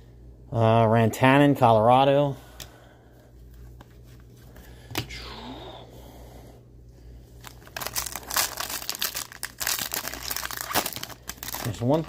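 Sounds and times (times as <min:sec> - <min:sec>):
foil wrapper tearing and crinkling: 0:07.4 - 0:12.0.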